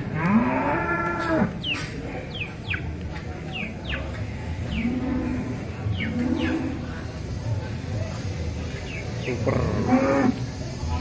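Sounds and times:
bird chirping: 0:01.6 - 0:05.0, 0:05.8 - 0:06.8.

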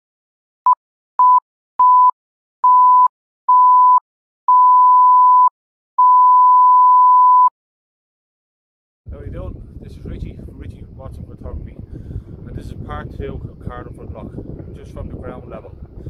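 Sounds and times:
electronic beep tone: 0:01.2 - 0:07.5.

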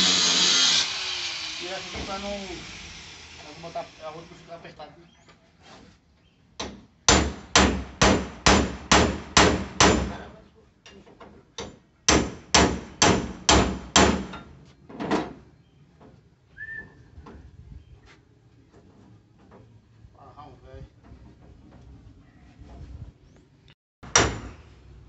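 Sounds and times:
hammer striking metal: 0:06.6 - 0:10.2, 0:24.0 - 0:24.6.

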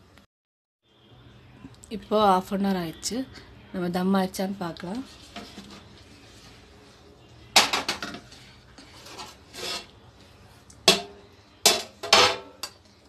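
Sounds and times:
metal scrape: 0:08.0 - 0:10.0
metal pot lids clattering: 0:10.9 - 0:12.8.

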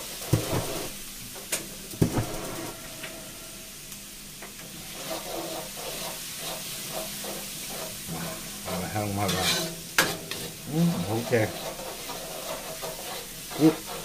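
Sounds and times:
garlic sizzling in oil: 0:00.0 - 0:14.0
ladle stirring and scraping: 0:04.8 - 0:14.0.

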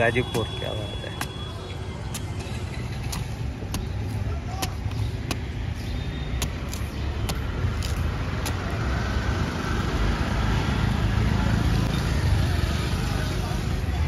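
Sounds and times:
road traffic rumble: 0:00.0 - 0:14.0
knife chopping fruit husk: 0:00.3 - 0:02.4, 0:03.0 - 0:08.9.

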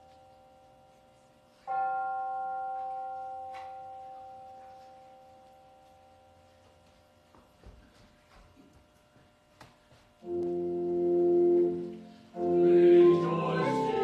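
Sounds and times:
soft footfalls: 0:06.6 - 0:10.7.

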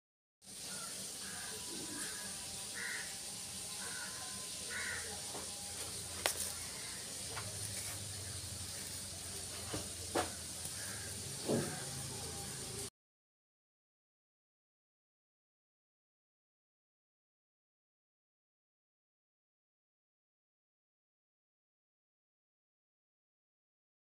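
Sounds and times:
steady hiss: 0:00.4 - 0:12.9.

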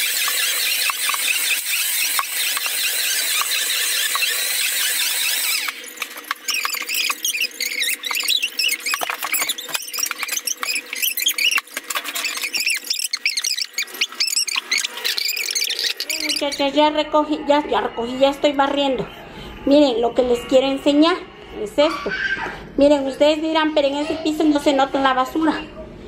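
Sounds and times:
vacuum cleaner hissing: 0:00.0 - 0:11.6
squeaky warbles and clicks: 0:00.0 - 0:17.1.

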